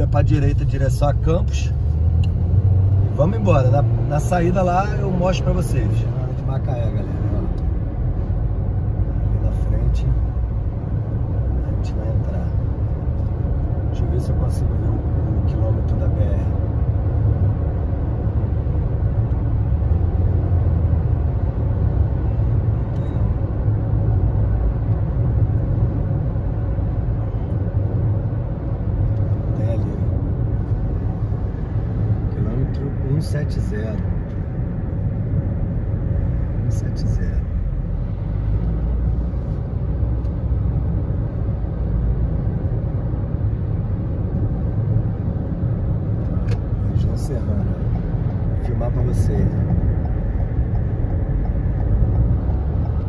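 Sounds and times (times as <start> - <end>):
car driving on highway: 0.0 - 53.0.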